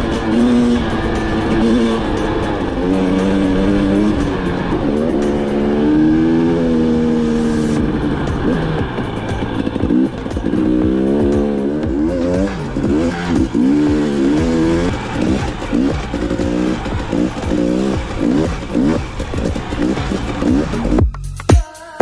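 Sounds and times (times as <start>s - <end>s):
motorcycle engine revving: 0.0s - 21.1s.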